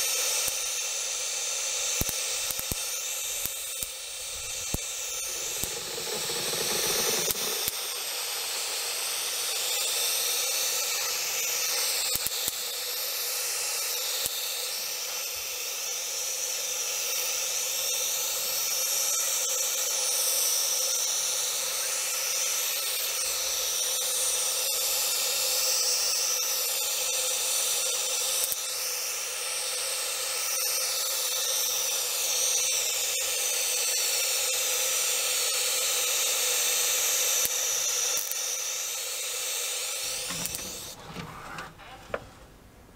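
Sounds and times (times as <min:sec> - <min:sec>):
spray paint hissing: 0:02.0 - 0:10.1, 0:39.1 - 0:41.0.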